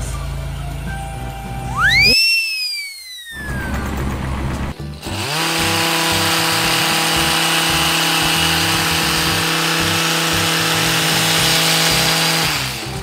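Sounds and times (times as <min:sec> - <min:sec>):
power hedge trimmer running: 0:03.4 - 0:13.0.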